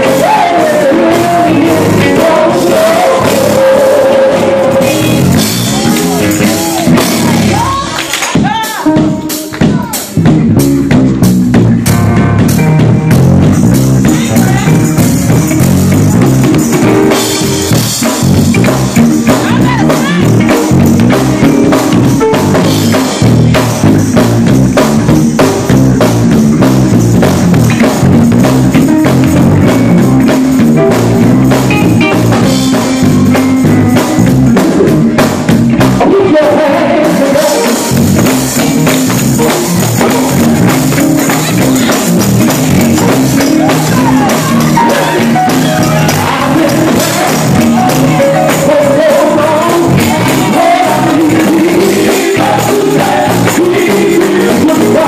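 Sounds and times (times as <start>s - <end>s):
male vocal group singing gospel: 0.0s - 7.8s, 13.7s - 26.4s, 35.9s - 55.0s
drum kit: 0.0s - 55.0s
electric guitar: 0.0s - 55.0s.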